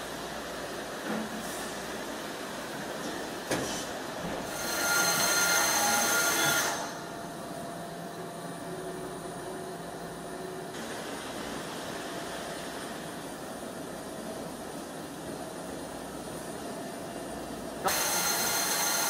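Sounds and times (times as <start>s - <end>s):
milling machine running: 4.2s - 19.0s.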